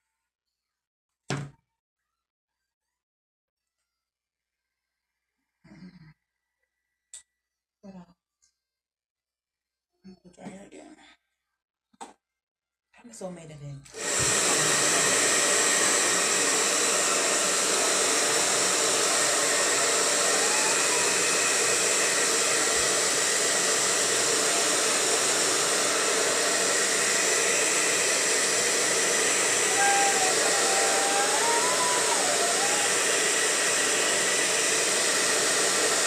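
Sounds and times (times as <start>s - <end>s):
hair dryer blowing: 14.0s - 36.0s.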